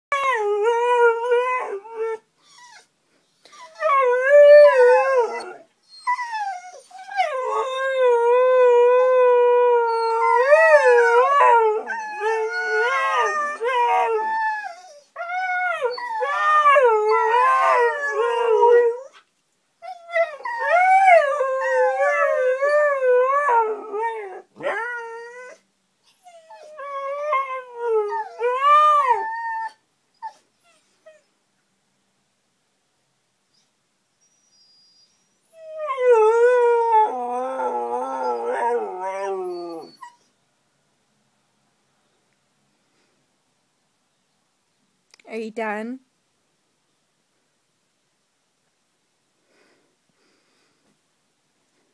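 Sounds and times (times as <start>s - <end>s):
dogs howling: 7.1s - 19.1s.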